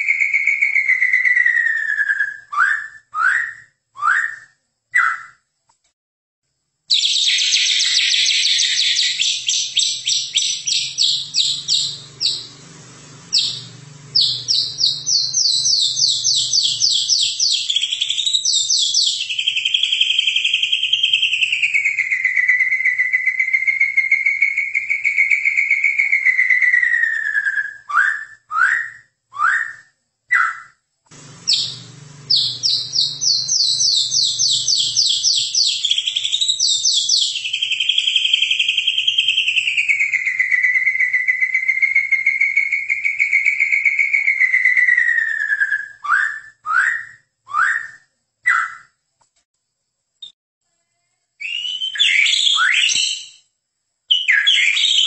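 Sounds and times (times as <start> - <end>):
long wavering bird whistle: 0.0 - 5.5, 6.9 - 12.6, 13.3 - 30.8, 31.4 - 49.0, 51.4 - 53.5, 54.1 - 55.0
bird singing fast runs: 6.9 - 28.8, 31.1 - 47.9.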